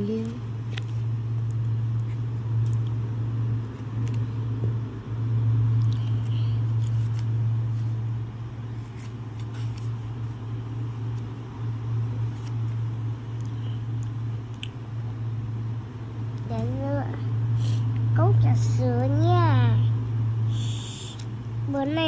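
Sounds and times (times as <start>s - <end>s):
low mechanical hum: 0.0s - 22.0s
paper rustling: 6.0s - 8.0s, 8.7s - 10.2s.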